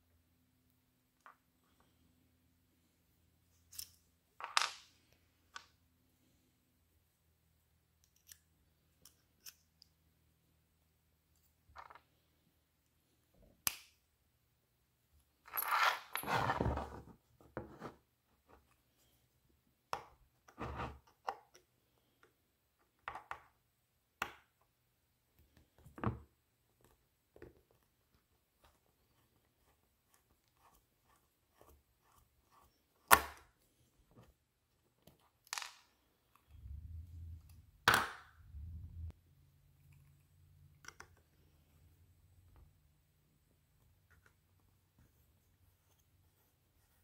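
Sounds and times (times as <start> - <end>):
low rumble of handling: 36.5 - 39.1.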